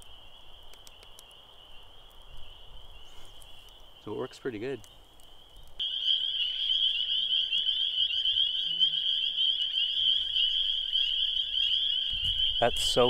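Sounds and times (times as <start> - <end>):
chorus of frogs calling: 5.8 - 13.0.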